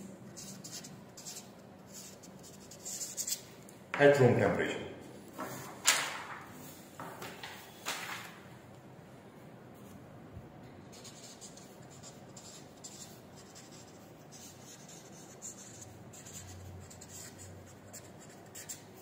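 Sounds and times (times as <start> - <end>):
marker pen scratching on paper: 0.3 - 3.5, 10.9 - 19.0.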